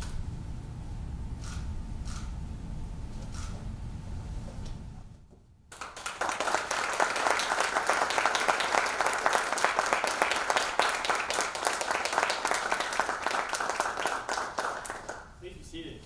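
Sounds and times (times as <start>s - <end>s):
group of people clapping: 5.7s - 15.3s.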